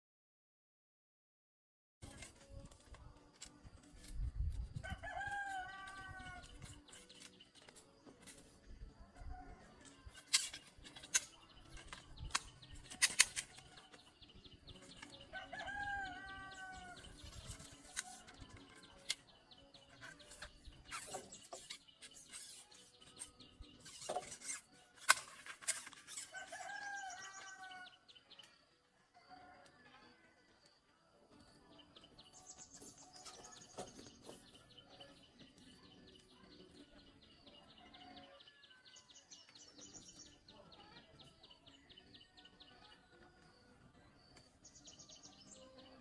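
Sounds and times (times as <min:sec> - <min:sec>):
rooster crowing: 0:04.8 - 0:06.4, 0:15.3 - 0:17.0, 0:26.3 - 0:28.0.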